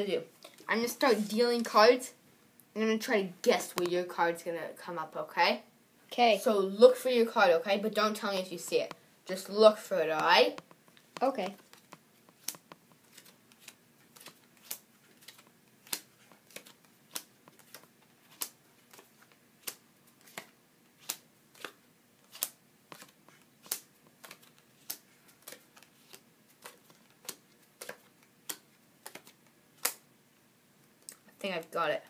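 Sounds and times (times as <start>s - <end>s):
cards clicking on wooden table: 10.2s - 30.0s.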